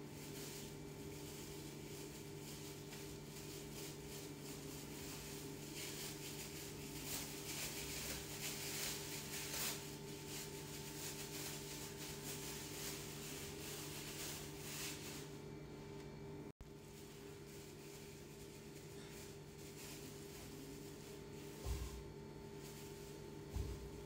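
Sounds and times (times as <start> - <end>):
meat rubbing and scraping: 0.0 - 15.5, 16.6 - 24.0
steady low hum: 0.0 - 24.0.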